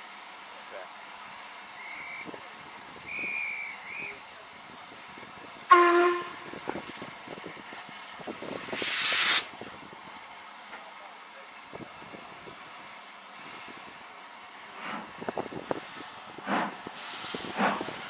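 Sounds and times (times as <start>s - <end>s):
steam hissing: 1.0s - 10.4s, 11.5s - 18.0s
steam locomotive whistle: 3.0s - 4.2s, 5.7s - 6.7s
high guard's whistle: 3.1s - 4.1s.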